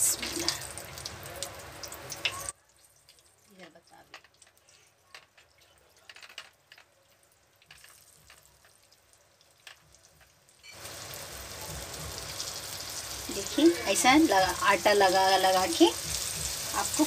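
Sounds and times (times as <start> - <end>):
fish sizzling in hot oil: 7.5 - 17.0.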